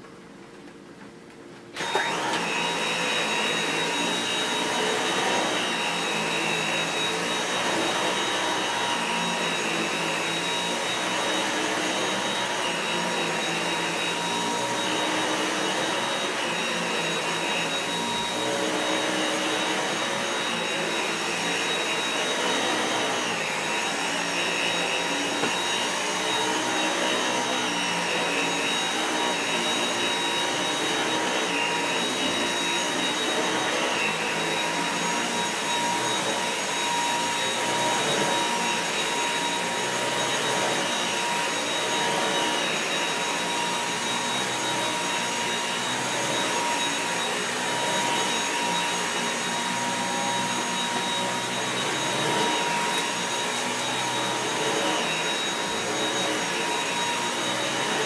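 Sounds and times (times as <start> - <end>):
vacuum cleaner whine: 0.0 - 58.0.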